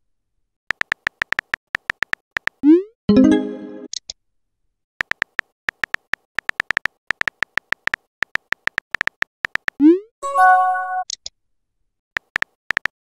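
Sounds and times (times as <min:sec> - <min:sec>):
keyboard tapping clicks: 0:00.7 - 0:02.6, 0:05.0 - 0:09.8, 0:12.2 - 0:12.9.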